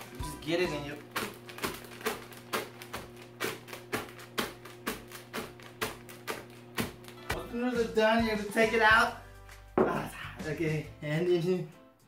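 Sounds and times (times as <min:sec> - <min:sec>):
background music with held notes: 0:00.0 - 0:01.4, 0:07.0 - 0:12.0
fist crushing chips in a bag: 0:01.1 - 0:06.3.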